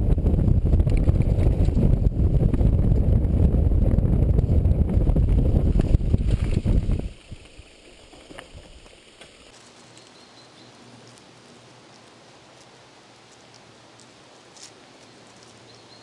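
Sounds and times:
wind buffeting microphone: 0:00.0 - 0:07.6
bike camera rattling: 0:00.2 - 0:03.4, 0:04.0 - 0:07.2.

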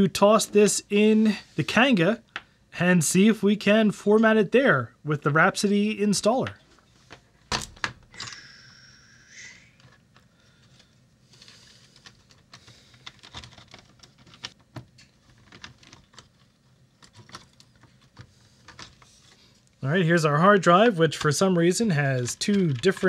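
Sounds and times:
plastic and metal parts clicking: 0:11.4 - 0:19.1, 0:22.1 - 0:23.0.

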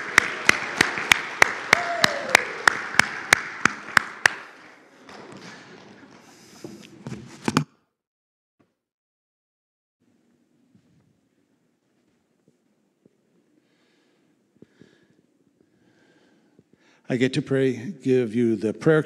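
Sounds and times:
crowd cheering: 0:00.0 - 0:04.7
sharp evenly spaced claps: 0:00.0 - 0:04.8
crowd applauding in a hall: 0:00.0 - 0:05.0
faint shuffling: 0:10.2 - 0:16.8.

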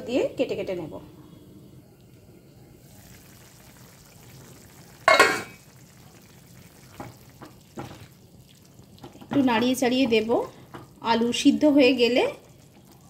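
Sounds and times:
curry simmering bubbling: 0:01.4 - 0:13.0
metal lid clattering: 0:05.1 - 0:05.6.

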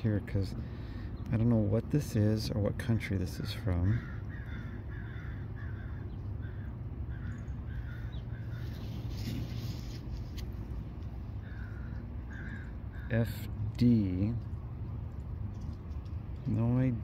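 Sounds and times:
low steady rumble: 0:00.0 - 0:17.0
bird harsh calls: 0:03.3 - 0:10.2, 0:11.3 - 0:13.6.

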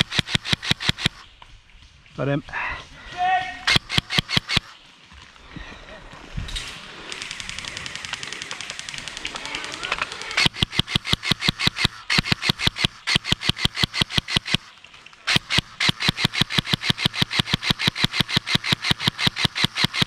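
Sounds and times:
airsoft rifle firing full auto: 0:00.0 - 0:01.2, 0:03.6 - 0:04.7, 0:07.1 - 0:20.0.

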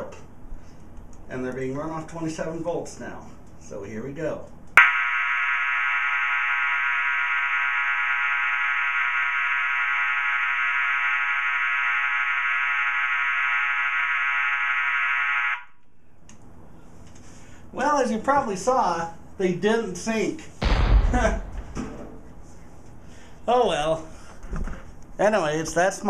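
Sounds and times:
fire alarm horn buzzing: 0:04.8 - 0:15.8.

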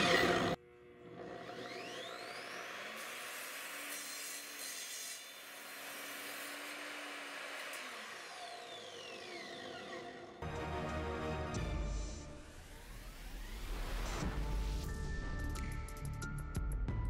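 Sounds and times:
miter saw motor whine: 0:00.0 - 0:10.4
saw cutting through wood: 0:00.0 - 0:10.4.

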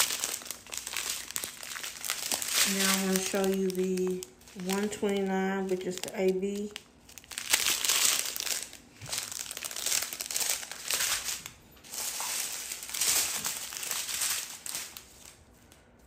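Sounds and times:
plastic bags crinkling: 0:00.0 - 0:15.7.

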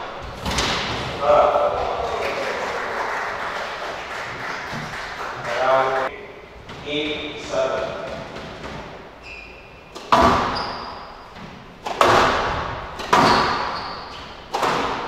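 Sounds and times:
shoes squeaking on court floor: 0:07.8 - 0:12.0, 0:13.0 - 0:15.0
squash ball smacks echoing: 0:11.8 - 0:13.7.

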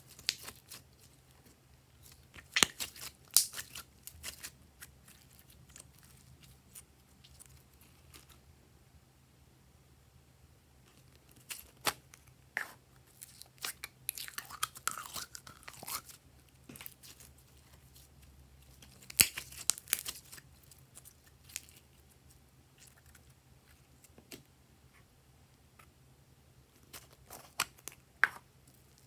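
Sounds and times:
slime sticky clicks and crackles: 0:18.8 - 0:20.4.

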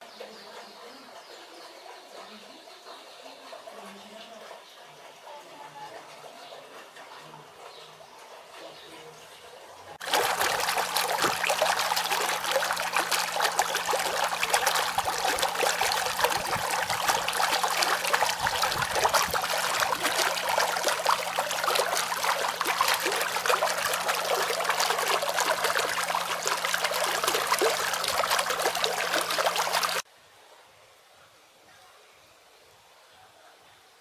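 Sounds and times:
stream water flowing: 0:10.0 - 0:30.1.

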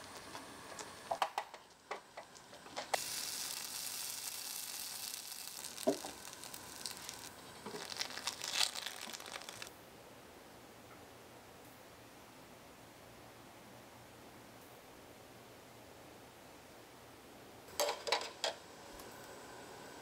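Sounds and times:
batter sizzling in skillet: 0:00.0 - 0:09.7.

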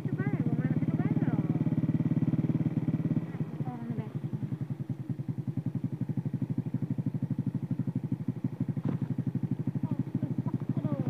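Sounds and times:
small motorcycle engine idling: 0:00.0 - 0:11.0.

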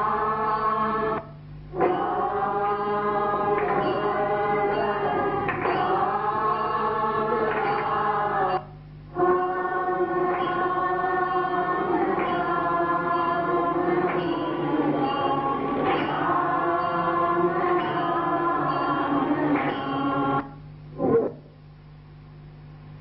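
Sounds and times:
group chanting on long held notes: 0:00.0 - 0:20.6.

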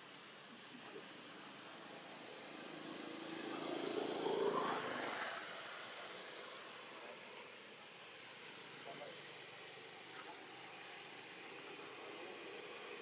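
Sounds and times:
vehicle passing by: 0:01.7 - 0:07.6.

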